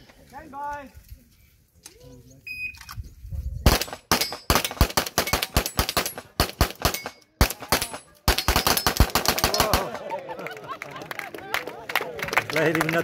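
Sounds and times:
rapid pistol fire: 3.7 - 10.0.

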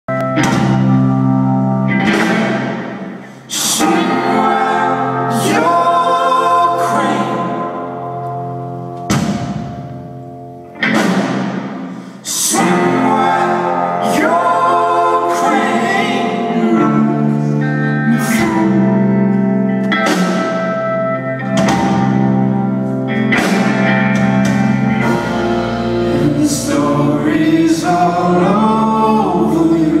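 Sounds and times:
live band playing: 0.1 - 30.0
person singing: 3.2 - 8.9, 12.0 - 20.2, 24.4 - 30.0.

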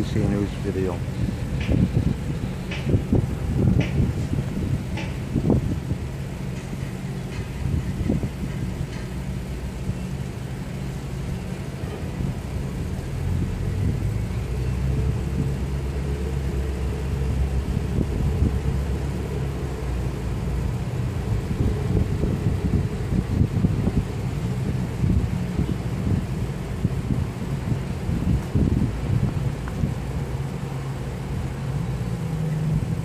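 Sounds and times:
engines rumbling: 0.0 - 33.0
wind buffeting microphone: 0.0 - 33.0.

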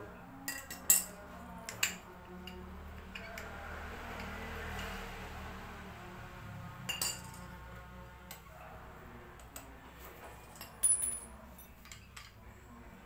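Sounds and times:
metal parts clinking: 0.5 - 2.0, 10.5 - 12.4.

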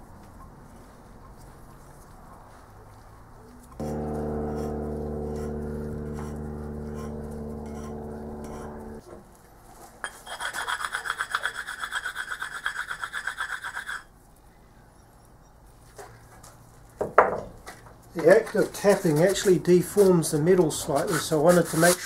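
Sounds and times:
machine humming: 3.8 - 9.0
metal rubbing back and forth: 3.8 - 9.0.

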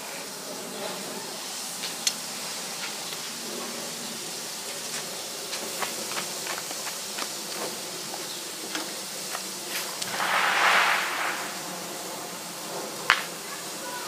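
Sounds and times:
chicken sizzling on a grill: 0.0 - 10.1, 12.8 - 14.0.

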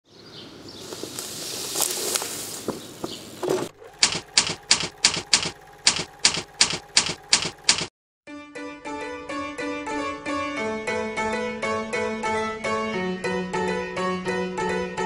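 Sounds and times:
hissing background noise: 0.2 - 3.5
typewriter key clacks: 4.0 - 7.9
harpsichord-like keyboard tune: 8.5 - 15.0.

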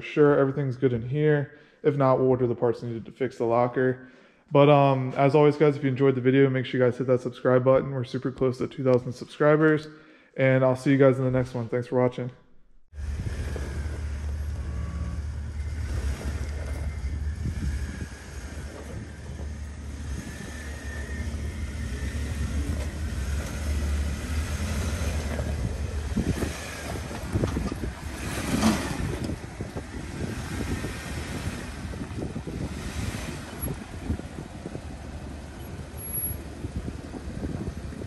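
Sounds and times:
engine running low under load: 13.0 - 38.0
tires knocking and scraping on rock: 13.0 - 38.0.

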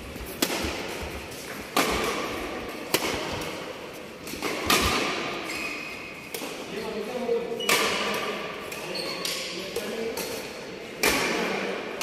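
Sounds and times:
racquets striking shuttlecock: 0.2 - 5.5.

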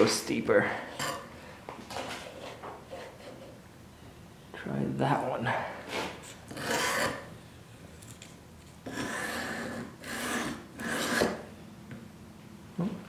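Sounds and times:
sharpening stone stroking knife edge: 6.6 - 7.2, 8.9 - 11.4.

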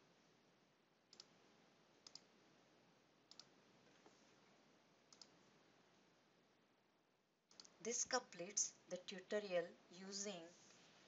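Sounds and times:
computer mouse clicks: 1.1 - 1.4, 2.0 - 2.3, 3.3 - 4.2, 5.1 - 5.4, 7.5 - 7.8.

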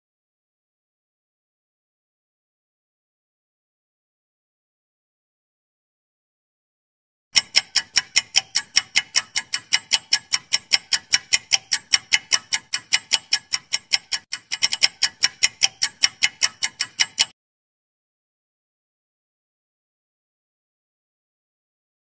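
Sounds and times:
clock-like timer ticks: 7.3 - 17.4.

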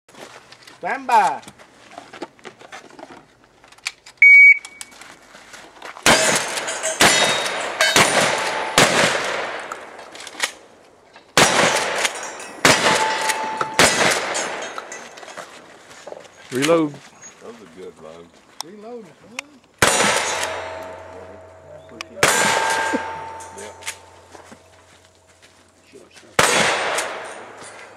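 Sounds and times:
shot timer beep: 4.2 - 4.9
shotgun blasts: 6.0 - 10.0, 11.4 - 14.7, 19.8 - 21.0, 22.1 - 24.2, 26.4 - 27.6.

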